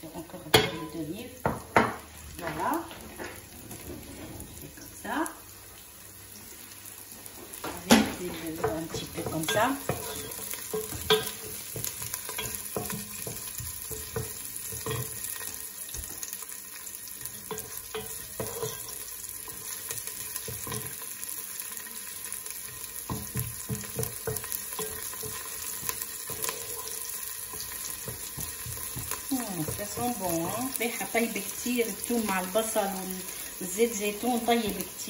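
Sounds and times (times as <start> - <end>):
shallots sizzling in oil: 0.0 - 35.0
wooden spoon scraping pot: 8.3 - 15.5, 17.2 - 21.0, 23.1 - 30.8.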